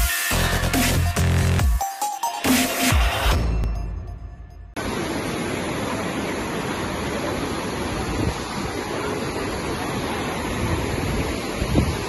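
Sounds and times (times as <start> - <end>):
floodwater rushing: 4.8 - 12.0.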